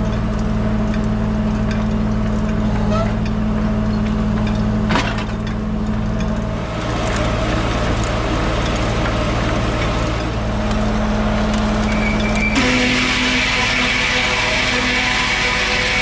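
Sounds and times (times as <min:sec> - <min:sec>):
tractor running: 0:00.0 - 0:16.0.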